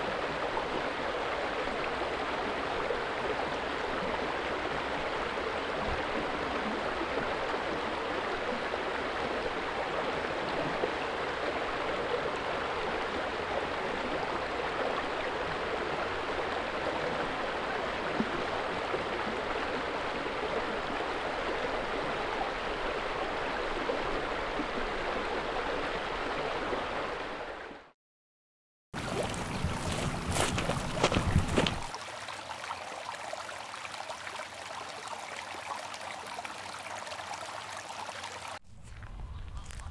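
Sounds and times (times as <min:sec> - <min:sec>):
running water rushing: 0:29.0 - 0:38.6.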